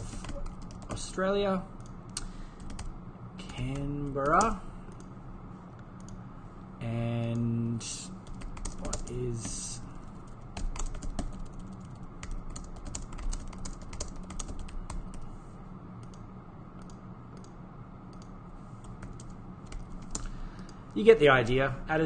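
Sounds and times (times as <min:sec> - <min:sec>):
typing on computer keyboard: 0:00.0 - 0:01.1, 0:02.6 - 0:05.1, 0:08.2 - 0:15.2, 0:18.2 - 0:20.7.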